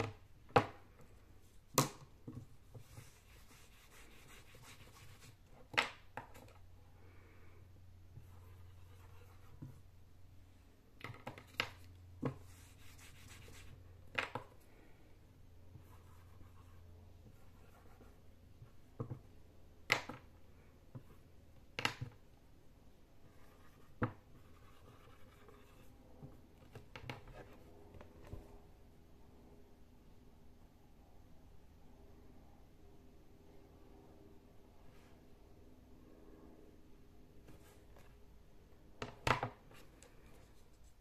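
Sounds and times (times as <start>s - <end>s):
low steady hum: 0.0s - 41.0s
marker scratching on whiteboard: 2.3s - 5.7s, 8.2s - 9.8s, 11.6s - 13.8s, 15.7s - 18.2s, 23.3s - 25.9s.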